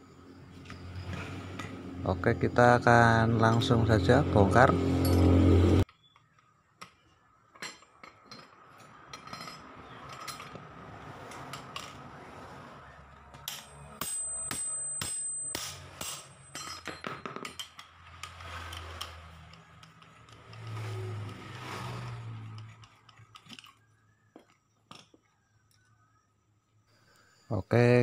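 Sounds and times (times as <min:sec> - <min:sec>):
metal hand tools clinking: 0:07.6 - 0:10.6, 0:13.4 - 0:21.6.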